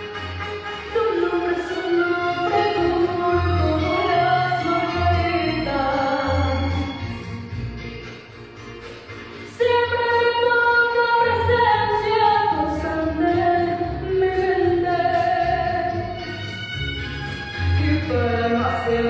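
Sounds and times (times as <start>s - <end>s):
backing music: 0.0s - 19.0s
girl singing into a microphone: 0.9s - 6.9s, 9.6s - 16.1s, 17.8s - 19.0s.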